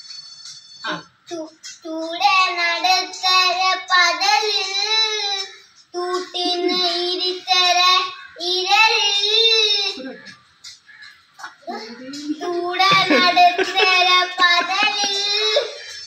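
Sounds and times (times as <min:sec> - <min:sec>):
child singing unaccompanied: 0:00.9 - 0:10.5, 0:11.4 - 0:16.0.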